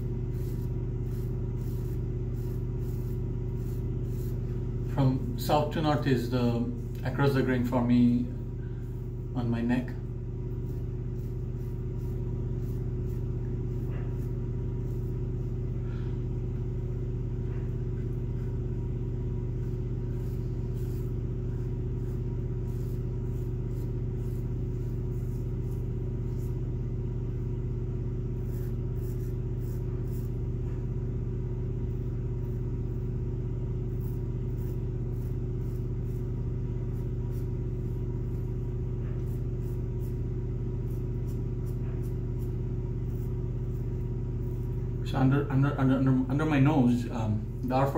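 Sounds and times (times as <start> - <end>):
razor scratching stubble: 0.0 - 4.9, 10.5 - 15.5, 19.6 - 26.7, 28.4 - 30.4, 33.9 - 44.9
steady low hum: 0.0 - 47.9.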